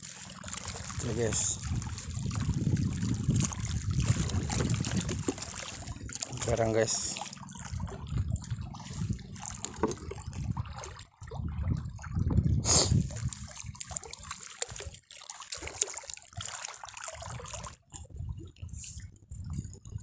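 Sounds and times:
seawater sloshing and trickling: 0:00.0 - 0:20.0.

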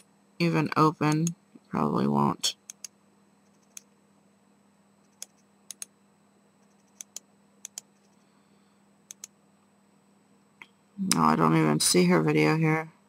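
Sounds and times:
computer mouse clicking: 0:02.6 - 0:03.9, 0:05.0 - 0:05.9, 0:06.6 - 0:08.2, 0:09.1 - 0:09.4.

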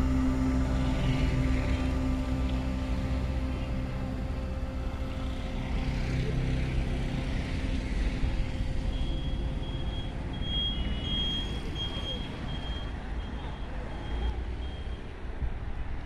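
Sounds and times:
engine hum passing: 0:00.0 - 0:14.6
highway traffic rumble: 0:00.0 - 0:16.0
high-pitched beeping: 0:08.9 - 0:14.9.

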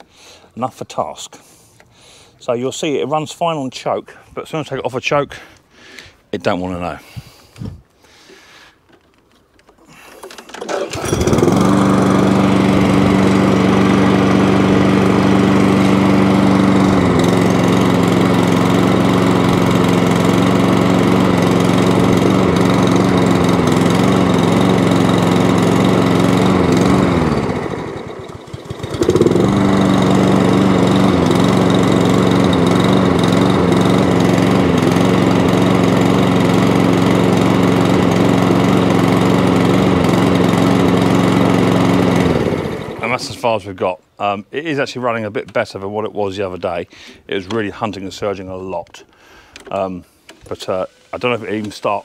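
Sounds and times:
lawn mower engine surging: 0:08.9 - 0:43.8.

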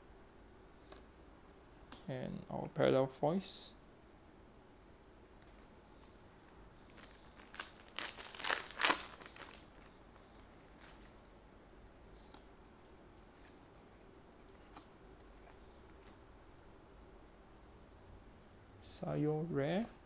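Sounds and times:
cards rustling: 0:05.5 - 0:11.2, 0:13.2 - 0:16.2
plastic wrapper crinkling and tearing: 0:06.9 - 0:11.2.

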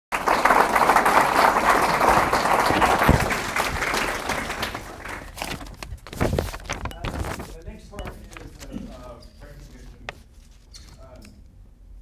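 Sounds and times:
audience applause: 0:00.1 - 0:05.4.

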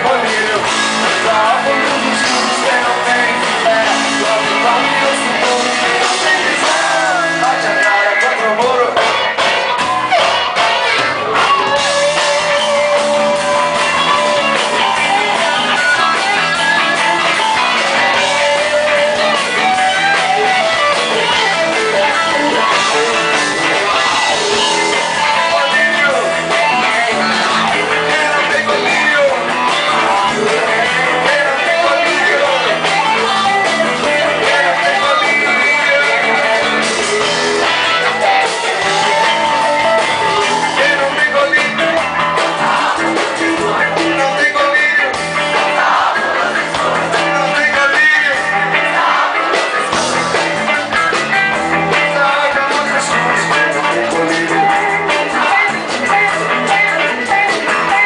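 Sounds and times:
person singing: 0:00.0 - 0:09.4, 0:10.1 - 0:58.0
drums and bass: 0:00.0 - 0:58.0
electric guitars: 0:00.0 - 0:58.0.

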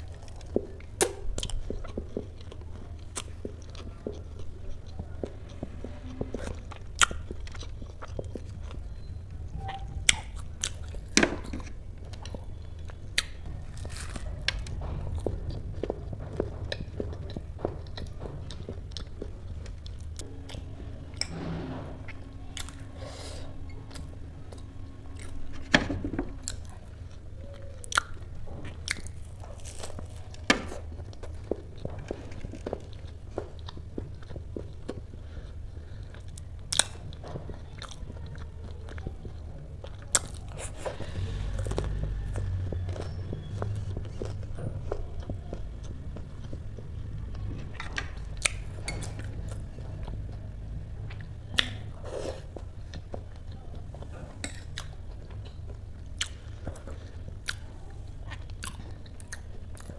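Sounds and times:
crunchy chewing: 0:00.0 - 0:59.9
low steady hum: 0:00.0 - 0:59.9.

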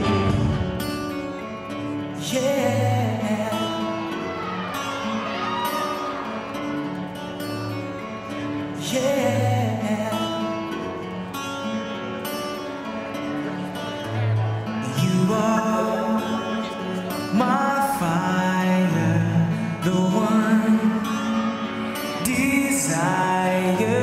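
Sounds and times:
pop song with singing: 0:02.0 - 0:06.6, 0:08.3 - 0:10.9, 0:14.8 - 0:24.0.

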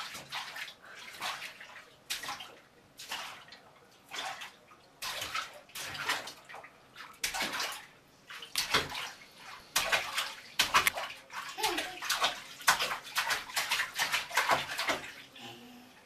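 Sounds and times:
child splashing bath water: 0:00.0 - 0:16.0.

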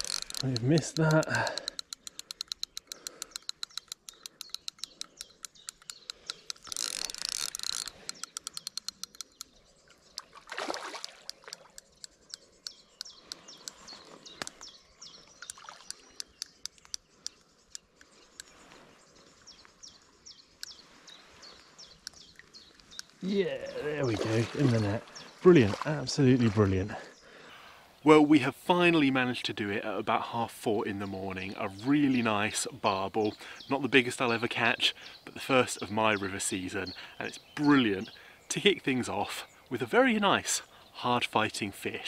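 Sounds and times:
fishing reel ticking: 0:00.0 - 0:10.2, 0:11.0 - 0:14.6
birds chirping: 0:00.0 - 0:42.0.

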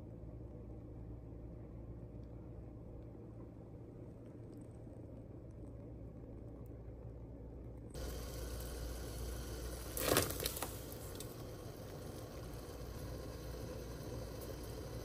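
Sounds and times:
water boiling and bubbling: 0:08.0 - 0:15.0.

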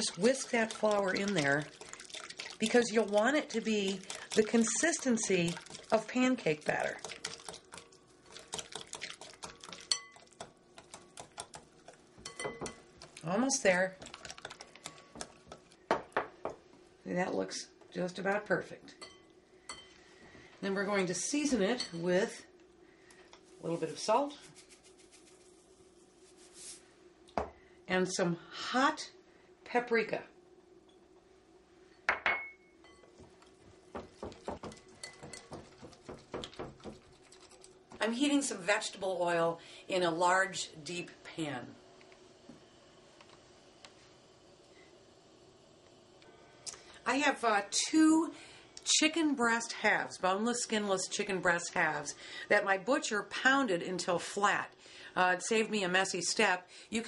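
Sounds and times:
whisk clinking on glass bowl: 0:06.8 - 0:10.5, 0:12.2 - 0:12.8, 0:34.5 - 0:37.5
glass bowl ringing: 0:32.1 - 0:33.1.

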